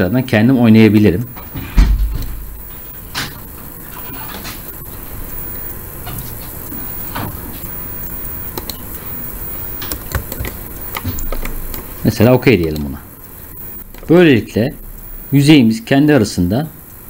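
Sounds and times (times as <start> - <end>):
microphone hiss: 0.0 - 17.0
low room rumble: 1.2 - 5.7
computer mouse clicks: 8.5 - 8.8, 9.8 - 11.9.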